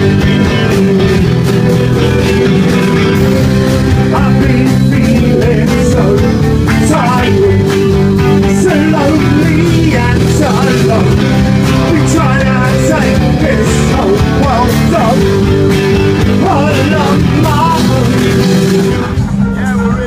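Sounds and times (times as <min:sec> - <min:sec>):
rock band playing live: 0:00.0 - 0:20.0
person singing: 0:03.2 - 0:18.7.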